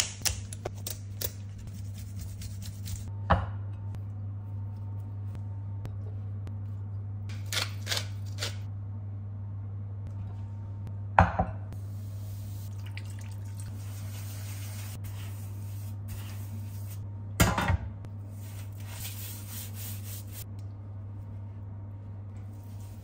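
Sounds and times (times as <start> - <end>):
steady low hum: 0.0 - 23.0
hands rubbing salt crust: 18.3 - 20.4.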